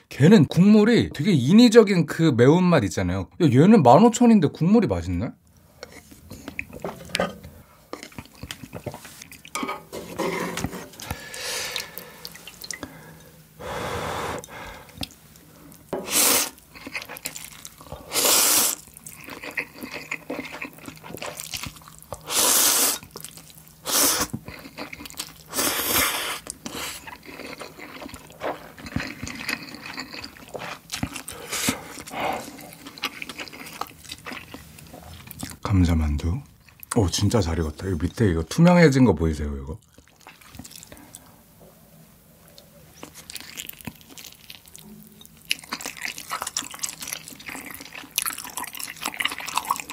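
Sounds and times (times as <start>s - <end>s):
mouth and chewing noises: 5.6s - 7.2s, 7.9s - 9.6s, 14.4s - 35.7s, 36.5s - 38.2s, 39.8s - 41.3s, 42.4s - 49.9s
person slurping noodles: 13.6s - 14.9s, 16.0s - 16.6s, 17.9s - 18.8s, 22.2s - 23.1s, 23.8s - 24.8s, 25.5s - 27.7s.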